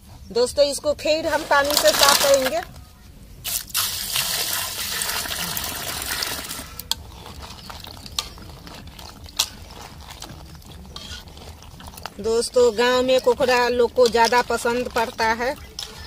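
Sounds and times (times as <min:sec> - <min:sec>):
water pouring into metal pan: 0:03.5 - 0:06.9.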